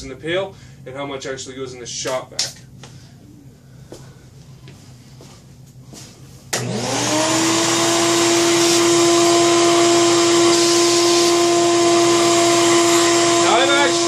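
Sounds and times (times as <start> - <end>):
shop vacuum motor whining: 6.5 - 14.0.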